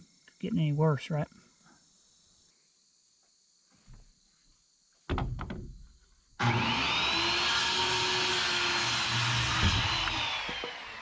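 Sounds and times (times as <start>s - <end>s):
knock and clatter: 5.1s - 5.8s
circular saw cutting wood: 6.4s - 11.0s.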